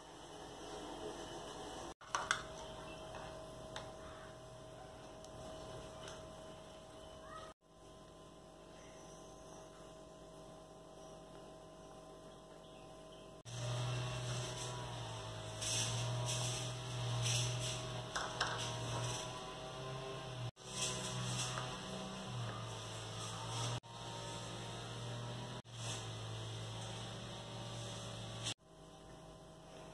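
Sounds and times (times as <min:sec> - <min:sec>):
toppings rustling onto pizza: 0:13.6 - 0:19.8, 0:20.6 - 0:24.6.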